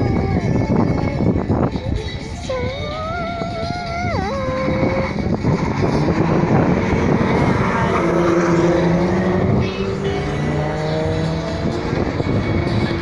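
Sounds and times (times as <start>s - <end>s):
race car accelerating hard: 4.9s - 13.0s.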